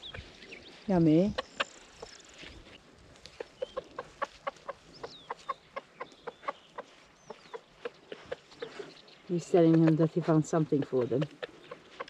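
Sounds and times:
rooster clucking food calls: 0:01.3 - 0:02.3, 0:03.3 - 0:08.9.

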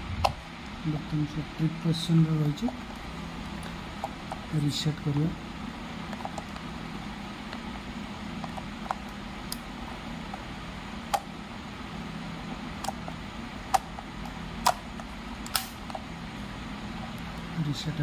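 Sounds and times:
steady low hum: 0:00.0 - 0:18.0
circuit breaker clicks: 0:15.4 - 0:15.8.

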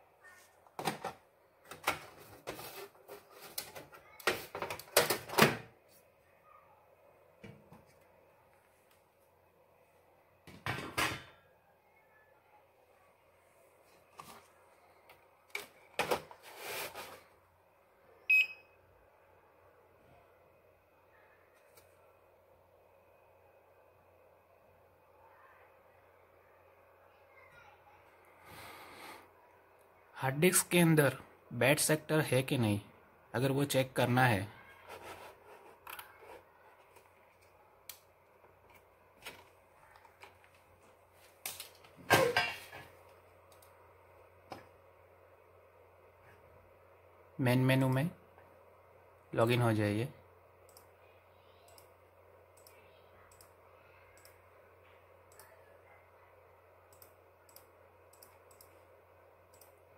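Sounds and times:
computer mouse clicks: 0:51.7 - 0:51.9, 0:52.6 - 0:53.6, 0:54.2 - 0:54.4, 0:55.3 - 0:55.5, 0:56.9 - 0:58.8, 0:59.5 - 0:59.8.

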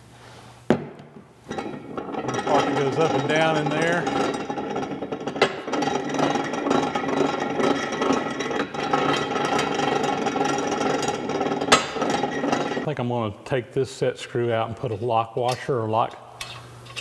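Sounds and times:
arbor press gearing whirring: 0:01.5 - 0:12.9.

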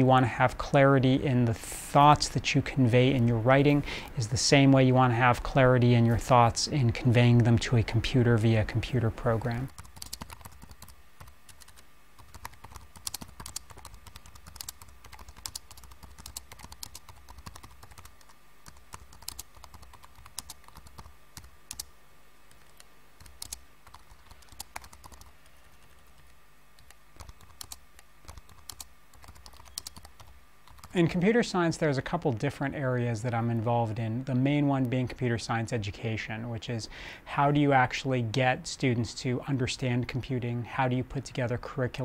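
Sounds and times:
faint steady hum: 0:00.0 - 0:42.0
keyboard typing: 0:09.2 - 0:21.9, 0:22.5 - 0:30.9.

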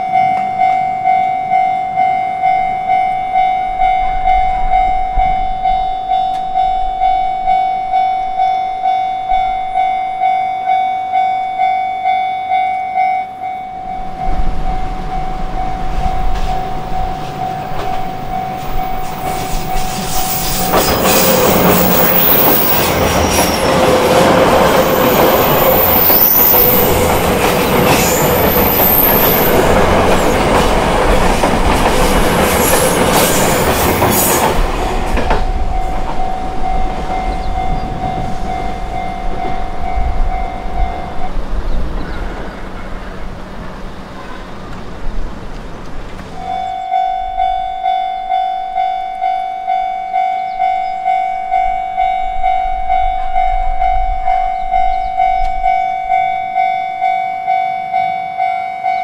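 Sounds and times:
level crossing bell clanging: 0:00.0 - 0:30.5, 0:35.4 - 0:41.2, 0:46.4 - 0:59.0
train wheels clattering: 0:15.5 - 0:41.0.

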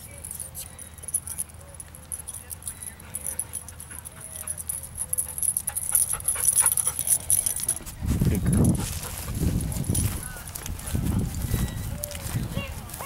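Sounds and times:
dog claws clicking and rustling: 0:00.2 - 0:07.9.

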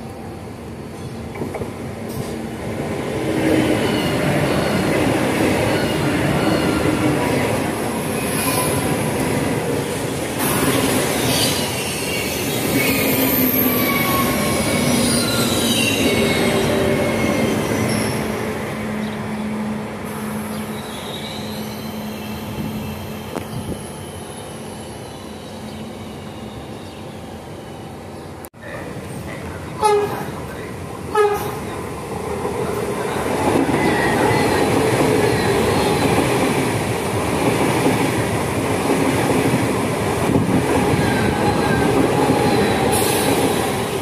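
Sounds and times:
high-speed train rushing past: 0:00.0 - 0:44.0.

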